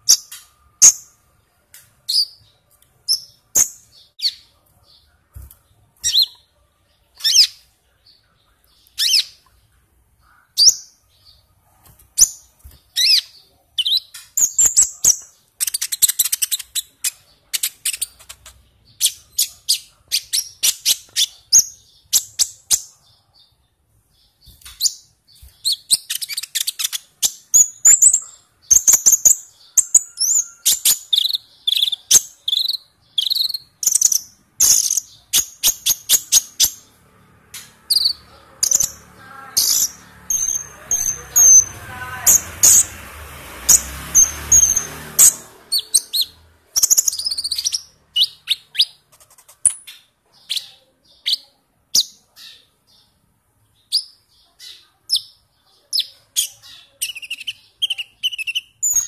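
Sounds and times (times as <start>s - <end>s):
sunbird singing: 12.2s - 37.0s, 37.7s - 43.0s, 43.7s - 49.0s.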